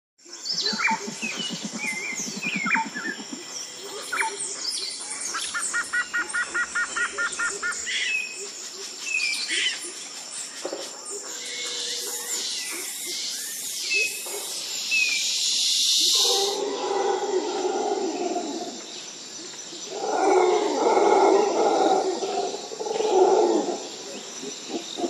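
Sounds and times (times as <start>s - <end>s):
wild birds chirping and whistling: 0.3s - 25.0s
steady high-pitched whine: 0.4s - 5.6s.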